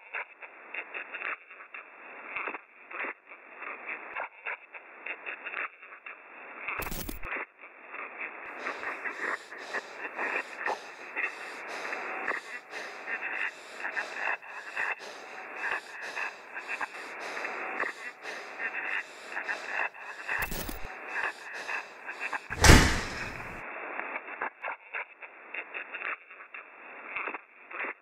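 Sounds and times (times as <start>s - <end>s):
person breathing hard: 8.5s - 23.6s
loud bang with low boom: 22.5s - 23.4s.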